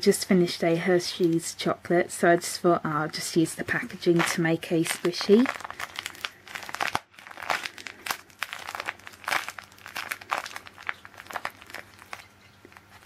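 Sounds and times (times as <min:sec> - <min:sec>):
wrapper crinkling: 0:03.7 - 0:13.0.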